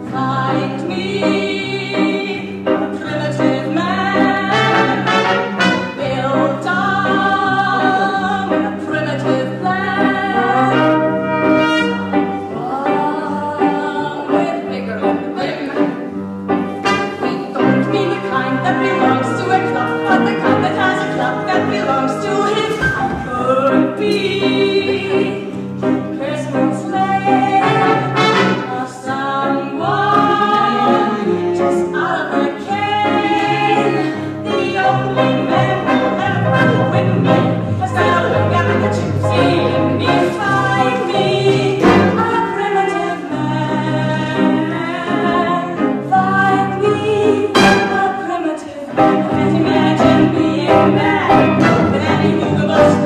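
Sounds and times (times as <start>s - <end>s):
woman singing with vibrato: 0.0s - 53.0s
live band with brass: 4.2s - 6.4s, 10.6s - 12.5s, 16.5s - 23.2s, 27.2s - 28.9s, 35.2s - 40.2s, 41.2s - 42.4s, 47.5s - 48.4s, 49.0s - 53.0s.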